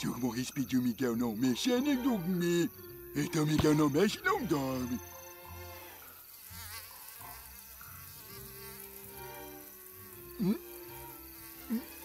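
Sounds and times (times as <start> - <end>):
insect buzzing: 0.0 - 12.0.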